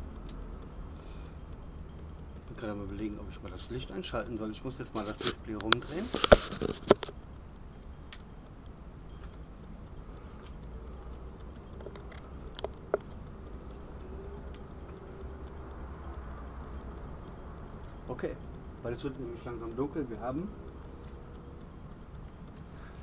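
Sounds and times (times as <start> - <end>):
faint ticks: 0.0 - 23.0
low steady hum: 0.0 - 23.0
camera handling knocks and clicks: 6.2 - 7.2.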